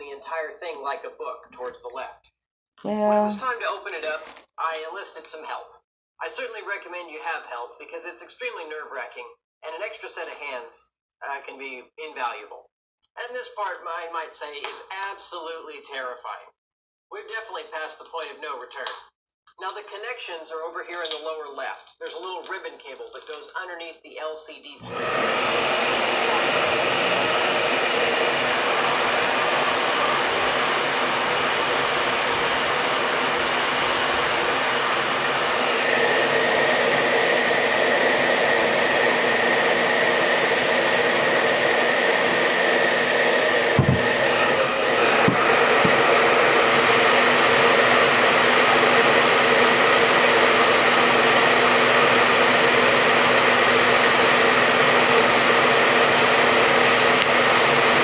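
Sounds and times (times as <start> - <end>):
hot-air blower running: 24.8 - 58.0.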